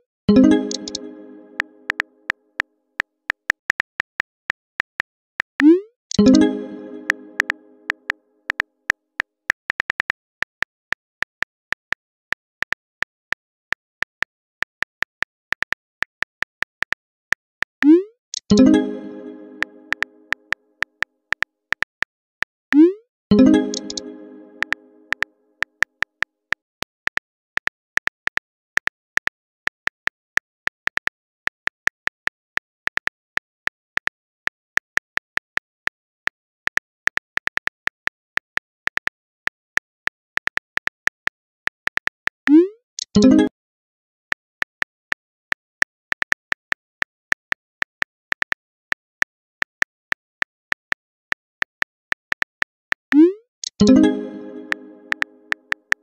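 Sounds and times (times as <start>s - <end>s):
keyboard typing clicks: 0.3s - 2.4s, 5.6s - 8.6s, 17.8s - 20.5s, 22.8s - 25.3s, 53.1s - 56.0s
phone keyboard typing clicks: 0.4s - 2.0s, 23.4s - 25.3s, 53.1s - 55.9s.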